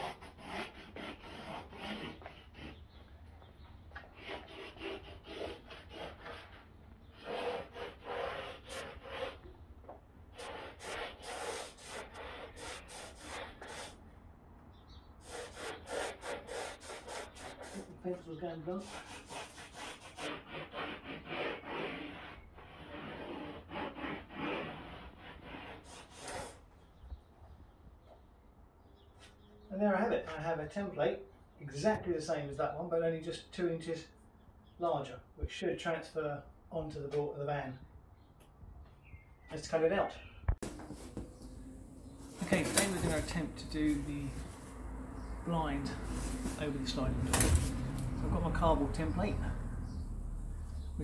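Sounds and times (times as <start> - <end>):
pencil and lid scraping on wood: 0.0 - 2.8, 4.0 - 9.4, 10.3 - 14.0, 15.2 - 17.9, 18.8 - 26.6, 40.6 - 44.7.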